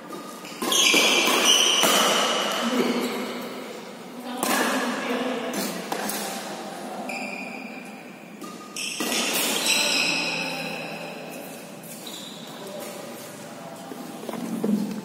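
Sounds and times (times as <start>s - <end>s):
shoes squeaking on court: 0.1s - 2.2s, 11.3s - 13.4s
racket striking shuttlecock: 0.6s - 2.6s.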